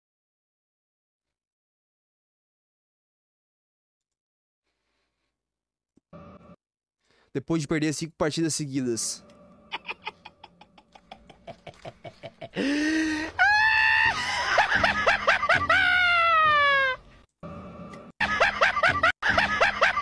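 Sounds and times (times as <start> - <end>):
man chuckling rapidly: 9.7 - 16.6
man shrieking laugh: 12.5 - 17.0.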